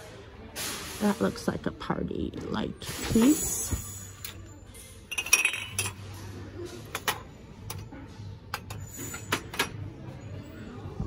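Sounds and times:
glass holders clinking: 0:04.2 - 0:07.9.

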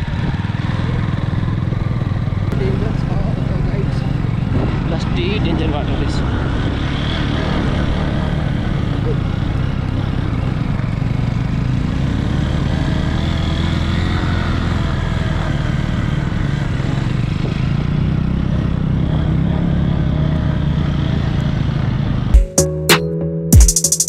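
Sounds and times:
vehicle engine running steadily: 0:00.0 - 0:22.4
music with a beat: 0:22.4 - 0:24.0.

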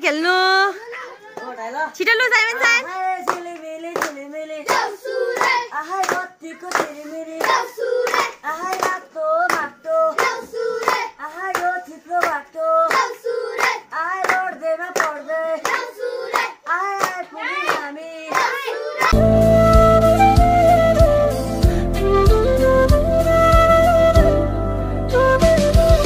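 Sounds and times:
boys singing together: 0:02.8 - 0:19.2
clapping in time: 0:17.0 - 0:18.5.

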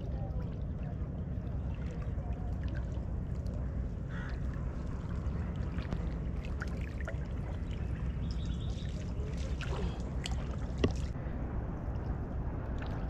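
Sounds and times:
water splashing and dripping: 0:00.0 - 0:11.2, 0:12.0 - 0:13.0
boat engine running: 0:00.0 - 0:13.0.

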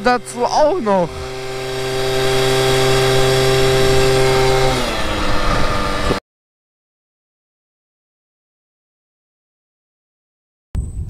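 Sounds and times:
moped two-stroke engine: 0:00.0 - 0:06.2.

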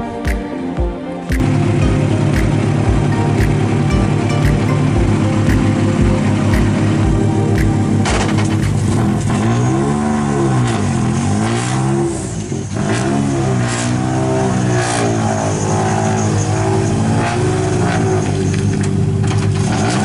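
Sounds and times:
car engine revving: 0:05.0 - 0:20.0.

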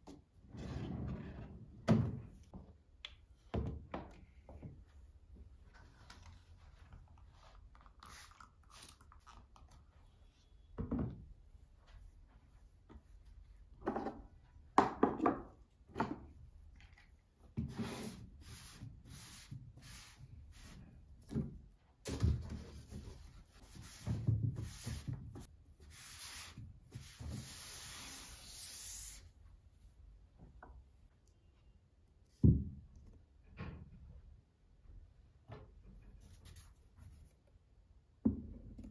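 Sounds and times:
cloth wiping desk: 0:17.7 - 0:21.0, 0:22.6 - 0:29.4.

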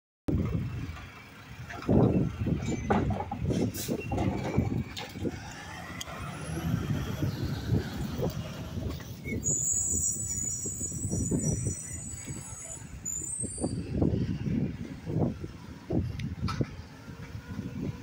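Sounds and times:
high-pitched brake squeal: 0:03.7 - 0:04.7, 0:09.2 - 0:14.4.

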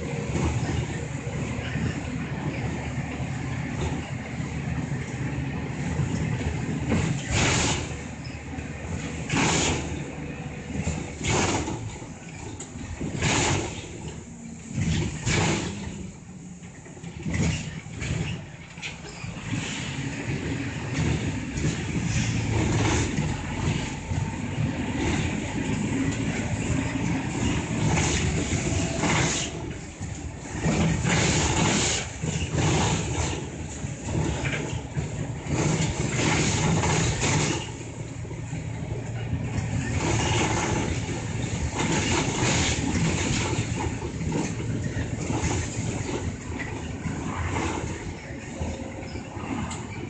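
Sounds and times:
bus engine: 0:00.0 - 0:50.0
road noise: 0:00.0 - 0:50.0.

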